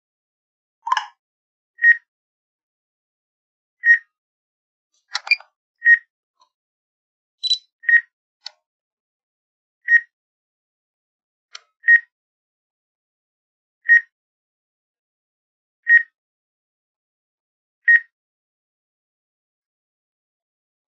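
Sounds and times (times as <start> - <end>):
short high beeps: 7.4 - 7.7.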